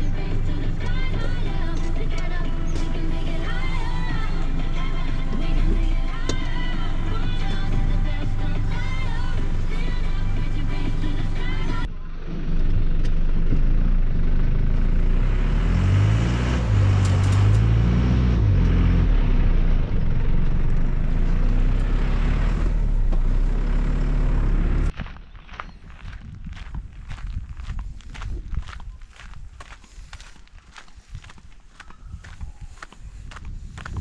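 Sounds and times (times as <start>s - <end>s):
vehicle engine running: 0.0s - 25.0s
light footsteps: 24.9s - 34.0s.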